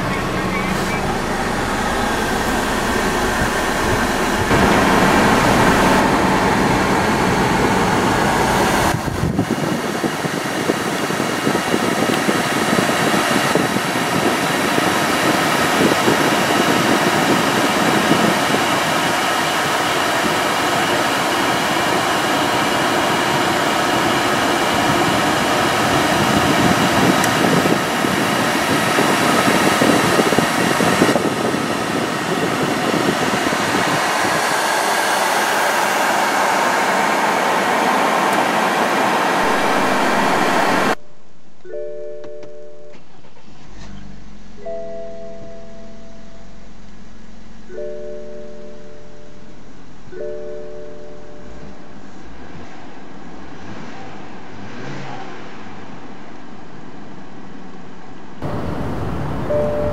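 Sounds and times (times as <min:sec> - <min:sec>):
climate control blower rushing air: 0:00.0 - 0:41.0, 0:58.4 - 0:59.9
car engine idling: 0:00.0 - 0:41.8, 0:55.8 - 0:59.9.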